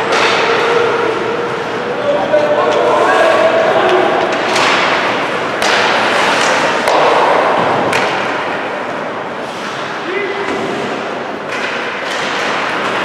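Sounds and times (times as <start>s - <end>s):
stick and puck clacks: 0.0s - 0.8s, 3.8s - 9.0s, 10.5s - 13.0s
noisy wash of hockey play: 0.0s - 13.0s.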